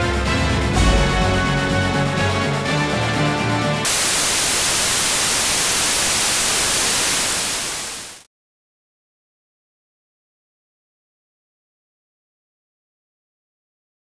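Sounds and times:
music: 0:00.0 - 0:03.9
video static hiss: 0:03.9 - 0:08.3.

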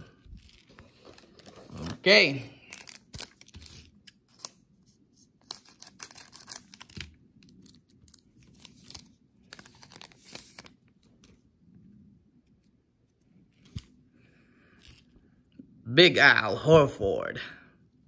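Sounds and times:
cards being handled: 0:00.0 - 0:11.4, 0:12.5 - 0:14.0, 0:14.7 - 0:15.1
plastic wrapper crinkling and tearing: 0:02.6 - 0:04.6, 0:05.4 - 0:10.9.

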